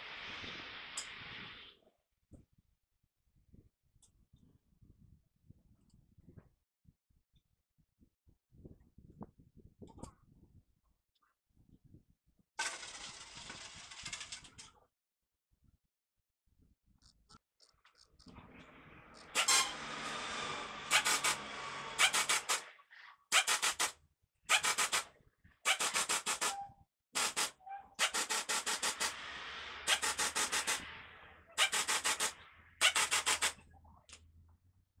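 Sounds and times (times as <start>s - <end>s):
rubbing and scraping: 18.3s - 23.9s
ratchet wrench clicking: 20.9s - 22.6s, 23.3s - 23.9s, 24.5s - 25.1s, 25.7s - 26.6s, 27.2s - 29.2s, 29.9s - 30.8s, 31.6s - 33.6s.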